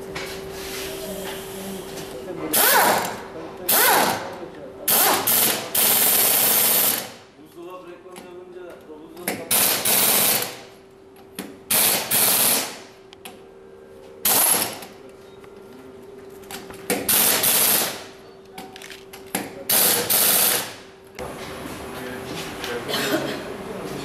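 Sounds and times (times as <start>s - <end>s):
impact wrench hammering: 11.4s - 12.8s.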